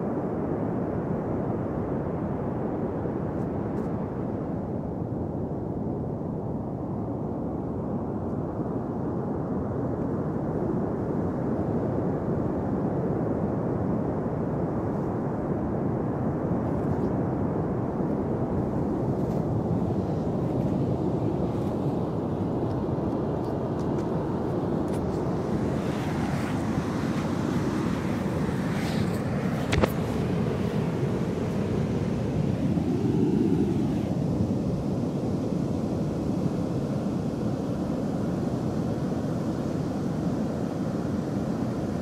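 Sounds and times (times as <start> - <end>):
wind noise on microphone: 0.0 - 42.0
ocean surf rumble: 17.2 - 42.0.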